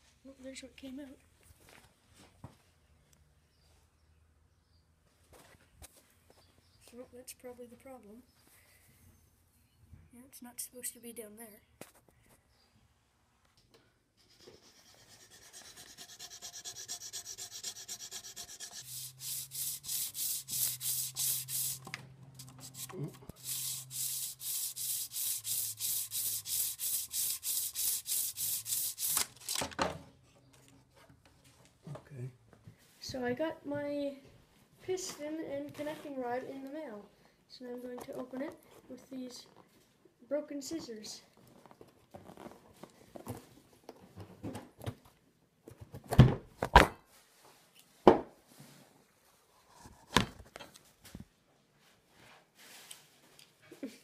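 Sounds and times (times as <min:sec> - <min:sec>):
abrasive cloth rasping on metal: 0:14.5 - 0:29.1
scissors cutting tape and cardboard: 0:15.4 - 0:29.8.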